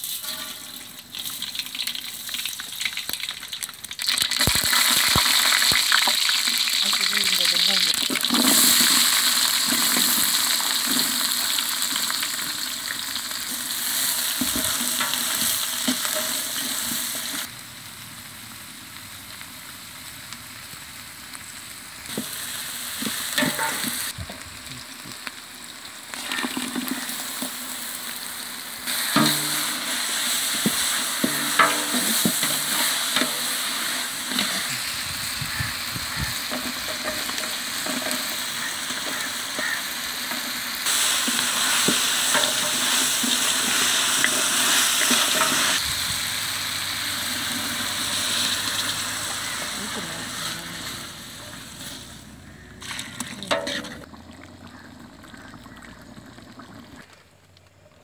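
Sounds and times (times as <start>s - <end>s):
onions sizzling in hot oil: 0.0s - 57.1s
metal ladle scraping pot: 23.3s - 24.1s, 28.9s - 34.6s, 36.2s - 40.5s, 41.8s - 45.8s, 50.8s - 54.1s.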